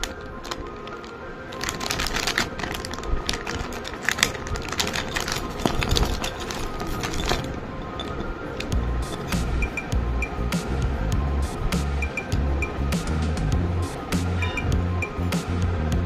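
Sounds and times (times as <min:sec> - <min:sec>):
plastic bag crinkling: 0:00.0 - 0:09.4
background music: 0:00.0 - 0:16.0.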